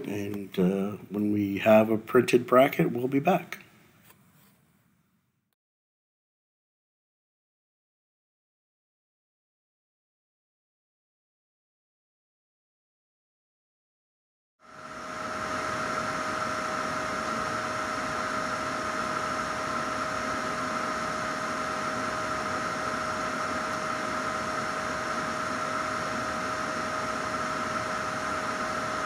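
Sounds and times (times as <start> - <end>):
constant motor whine: 14.6 - 29.0.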